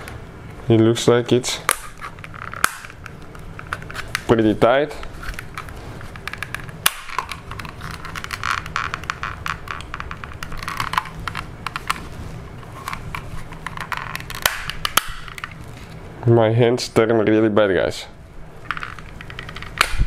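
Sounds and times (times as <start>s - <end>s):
sharp plastic snap: 1.7s - 4.3s, 6.5s - 8.1s, 14.1s - 15.5s, 19.1s - 20.0s.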